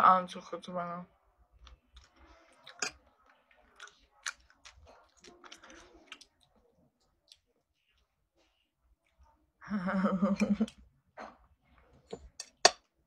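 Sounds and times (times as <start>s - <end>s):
person chewing with mouth clicks: 1.6s - 8.1s.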